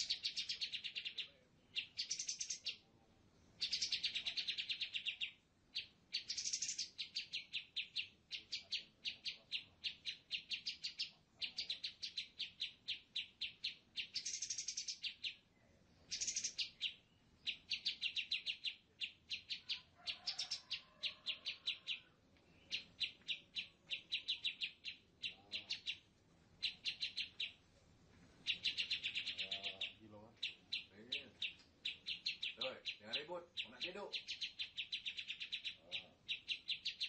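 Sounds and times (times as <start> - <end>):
bird trilling chirps: 0.0 - 2.9, 3.6 - 27.6, 28.4 - 37.0.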